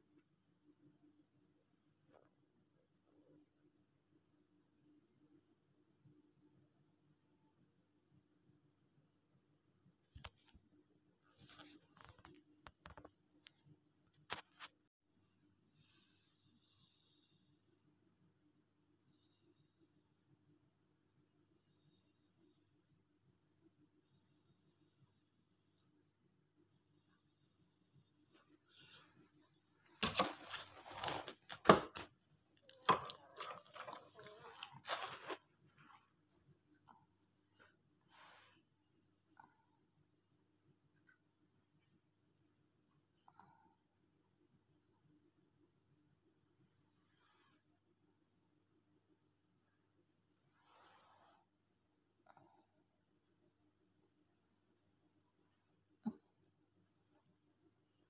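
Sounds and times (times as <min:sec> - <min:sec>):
faint high pulsing tone: 0:00.0 - 0:14.0, 0:15.1 - 0:31.3, 0:38.2 - 0:40.8.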